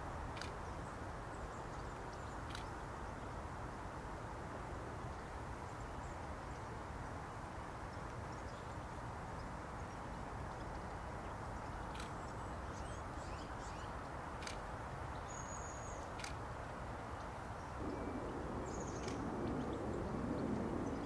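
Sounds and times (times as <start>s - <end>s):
low outdoor background noise: 0.0s - 21.0s
small birds chirping: 7.9s - 21.0s.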